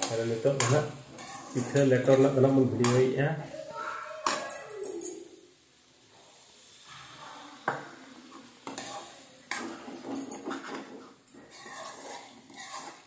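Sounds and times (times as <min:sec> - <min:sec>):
metal spoon scraping in metal pan: 0:00.0 - 0:03.2, 0:08.3 - 0:13.0.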